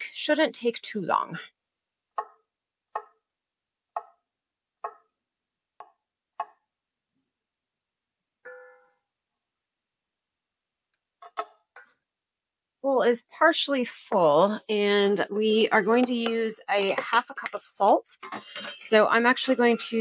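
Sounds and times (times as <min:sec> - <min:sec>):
short ringing tone: 0:08.5 - 0:09.0.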